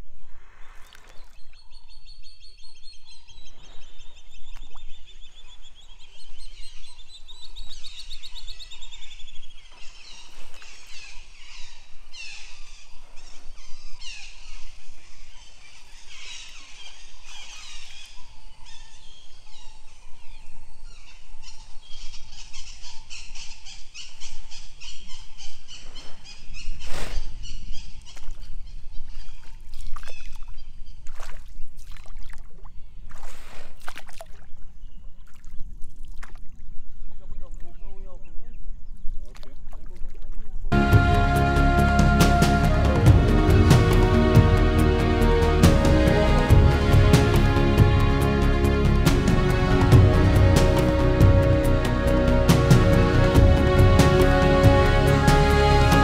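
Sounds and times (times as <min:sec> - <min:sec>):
canoe paddling water: 0:00.0 - 0:11.8, 0:27.9 - 0:37.8, 0:38.9 - 0:56.0
birds chirping and trilling: 0:00.0 - 0:29.5.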